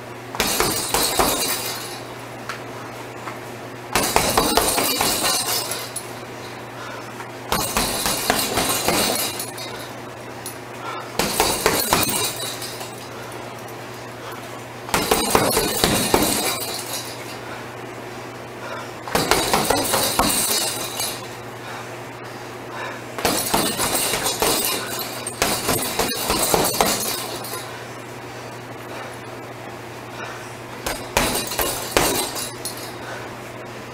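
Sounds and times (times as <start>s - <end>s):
steady low hum: 0.0s - 33.9s
punches thudding on heavy bag: 0.4s - 1.9s, 3.9s - 6.0s, 7.5s - 9.6s, 11.2s - 12.9s, 14.9s - 17.1s, 19.1s - 21.2s, 23.2s - 27.6s, 30.8s - 32.8s
chain rattling and jingling: 0.4s - 2.1s, 4.0s - 6.2s, 7.6s - 10.6s, 11.2s - 13.2s, 15.0s - 17.4s, 19.2s - 21.3s, 23.2s - 27.7s, 30.9s - 33.0s.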